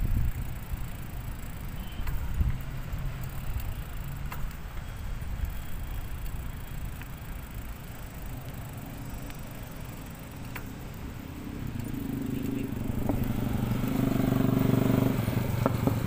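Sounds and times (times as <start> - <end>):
wind on microphone: 0.0 - 0.6
faint clicks and rattles: 0.0 - 11.1
tyres on road: 0.0 - 16.0.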